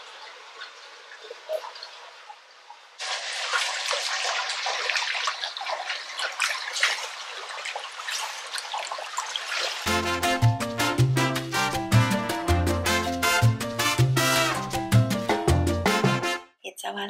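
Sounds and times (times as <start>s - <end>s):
water splashing from swimming: 0.0s - 10.2s.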